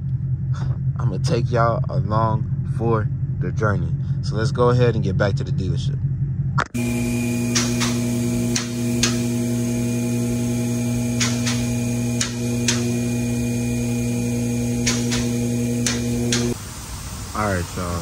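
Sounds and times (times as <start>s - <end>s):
electric pump motor humming: 6.7s - 18.0s
sharp metallic clicks: 7.5s - 9.3s, 11.1s - 13.1s, 14.8s - 16.6s.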